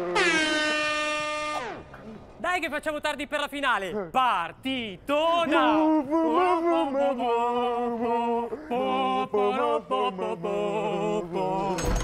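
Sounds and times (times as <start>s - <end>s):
men singing a wordless chant: 5.1s - 12.0s.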